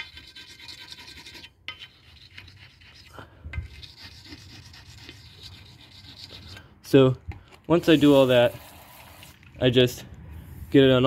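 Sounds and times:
pumice stone scraping porcelain: 0.0s - 6.6s.

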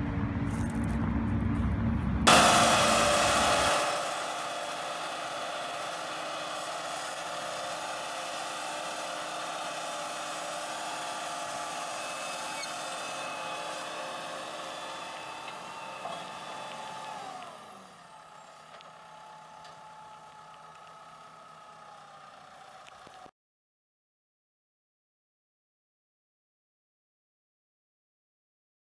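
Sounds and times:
tractor engine under load: 2.2s - 23.3s.

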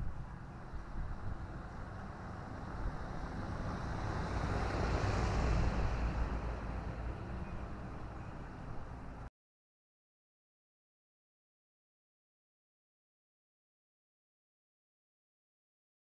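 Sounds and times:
car driving past: 0.5s - 9.3s.

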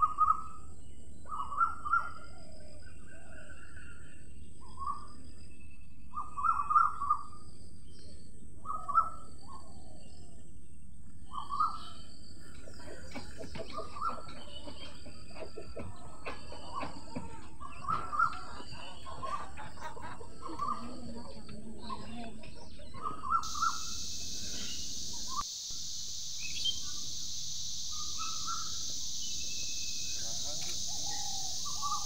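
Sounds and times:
birds calling: 11.3s - 32.0s
faint high hiss: 23.4s - 32.0s
short clicks: 30.6s - 31.8s.

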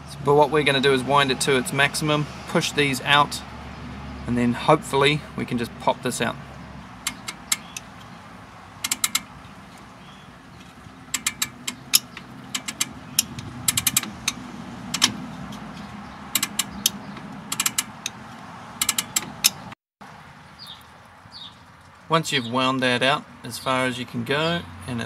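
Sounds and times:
brake adjuster clicking: 7.0s - 8.2s, 8.8s - 19.8s.

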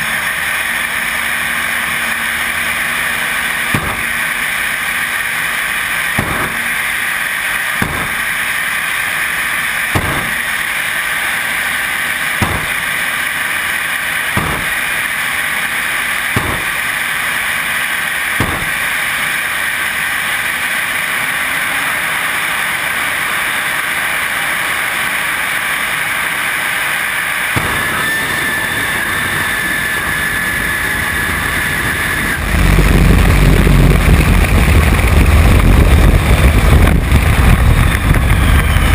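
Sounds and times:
jet engine running: 0.0s - 38.9s
sharp pops: 3.6s - 4.4s, 6.0s - 7.0s, 7.6s - 8.6s, 9.9s - 10.8s, 12.3s - 13.2s, 14.3s - 15.1s, 16.3s - 17.1s, 18.3s - 19.1s, 27.5s - 28.5s.

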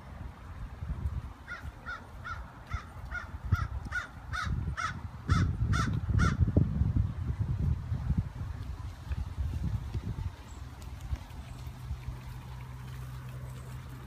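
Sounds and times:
crows cawing: 1.5s - 6.4s.

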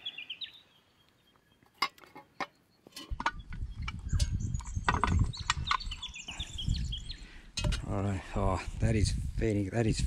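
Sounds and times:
birds chirping: 0.0s - 8.6s
shovel scraping metal lid: 1.8s - 3.4s.

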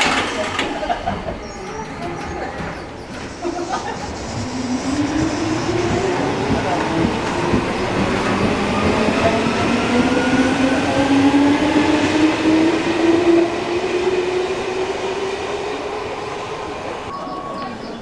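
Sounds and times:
electric train drive whine: 3.2s - 17.1s.

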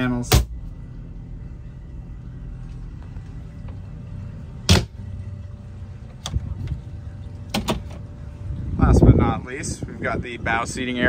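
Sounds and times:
low steady rumble: 0.0s - 11.0s.

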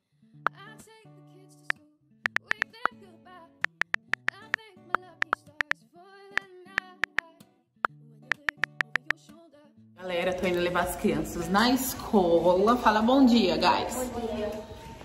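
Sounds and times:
typewriter key clicks: 8.3s - 9.0s.

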